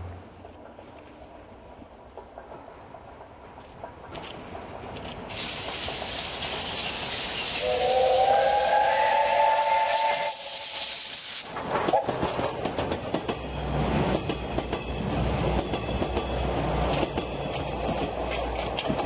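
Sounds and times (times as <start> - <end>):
low train rumble: 0.0 - 19.0
train wheels clicking over rail joints: 0.0 - 19.0
loud hiss of steam: 5.3 - 12.2
steam locomotive whistle: 7.6 - 12.1.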